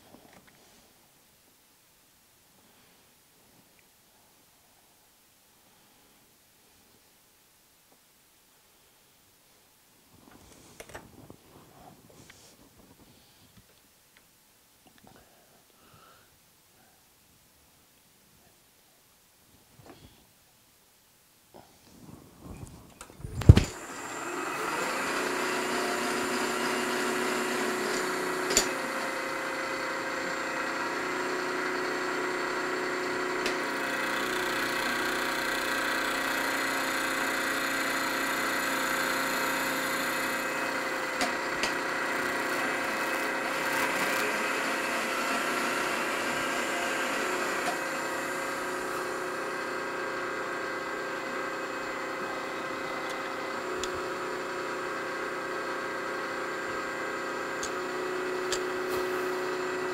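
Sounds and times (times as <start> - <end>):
milling machine whine: 23.0 - 59.9
hiss of metal cutting: 58.5 - 59.6.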